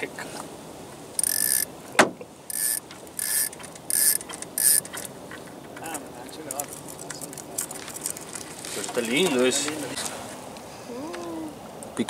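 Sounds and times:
fishing reel whirring: 1.2s - 1.7s, 2.5s - 5.1s.

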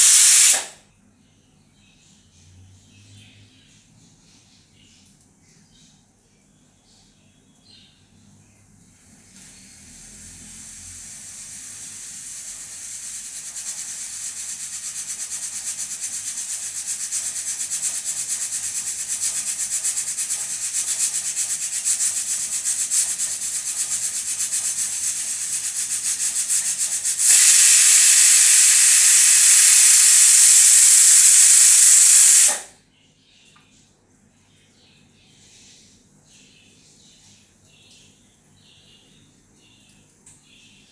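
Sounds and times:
pressure cooker steam hiss: 0.0s - 0.8s, 9.2s - 32.8s
pressure cooker whistle: 0.0s - 0.8s, 24.5s - 32.7s.

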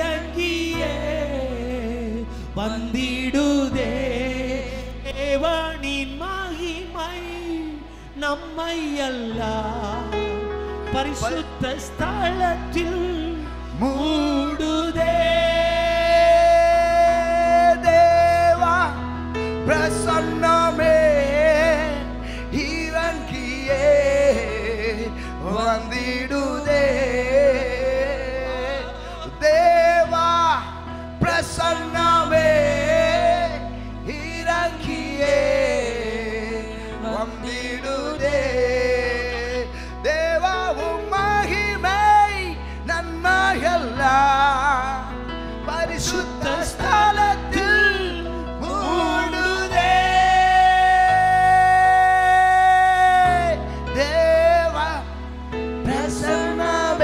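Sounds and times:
keyboard sustained chords: 0.0s - 57.0s
man singing into microphone: 0.0s - 57.0s.

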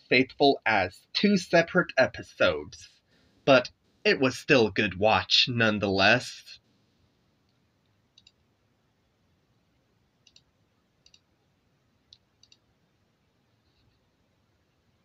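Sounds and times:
faint sharp clicks: 12.1s - 12.6s.

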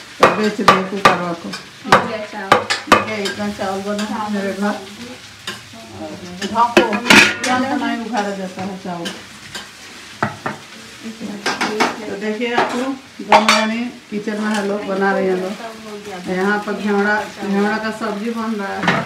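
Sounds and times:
metal plate clanking: 6.7s - 7.8s.

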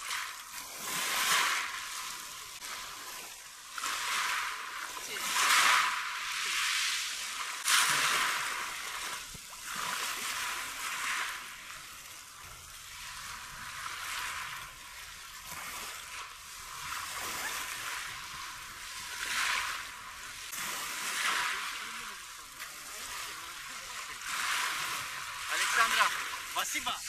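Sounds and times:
water splashing around swimming dog: 16.7s - 19.9s.

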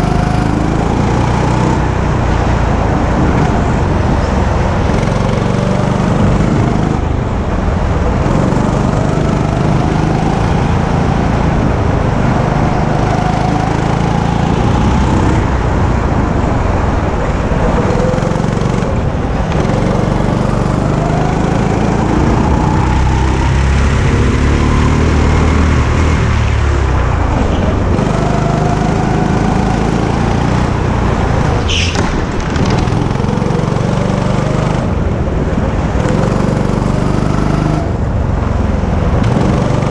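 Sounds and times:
go-kart engine revving: 0.0s - 39.9s
brief high squeak: 31.7s - 32.1s.

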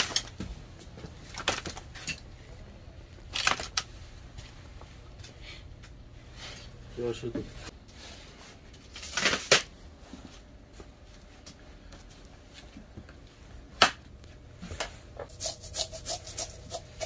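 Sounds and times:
knife scraping fish scales: 15.3s - 17.0s.

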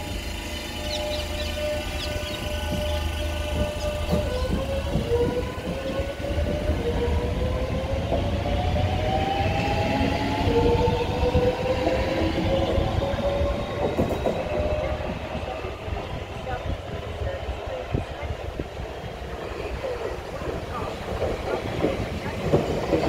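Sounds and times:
train motor whine rising: 0.0s - 7.4s
train wheels rumbling on track: 0.0s - 23.0s.

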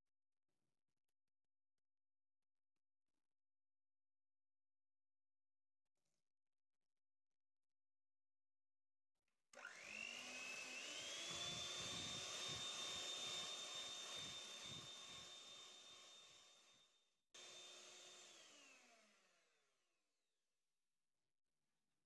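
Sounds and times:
electric hand mixer whining: 9.6s - 19.6s.

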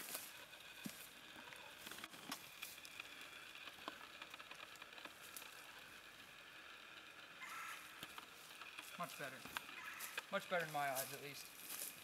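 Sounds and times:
footsteps on leaf litter: 0.0s - 1.1s, 8.8s - 12.0s.

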